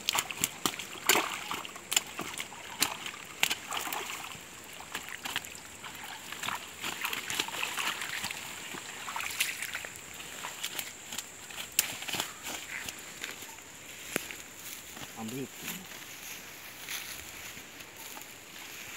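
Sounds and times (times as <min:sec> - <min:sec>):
water sloshing and splashing: 0:00.0 - 0:13.5
net rustling through undergrowth: 0:00.0 - 0:18.9.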